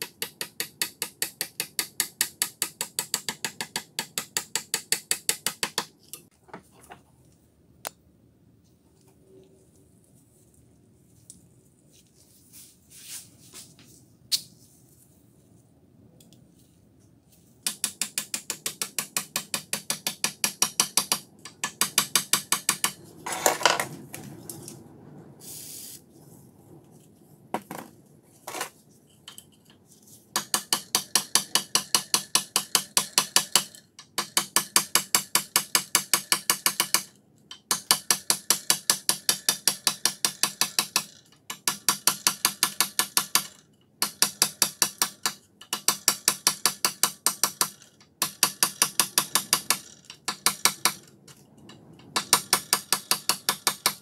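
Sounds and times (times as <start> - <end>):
rapid metallic clicking: 30.4 - 51.4.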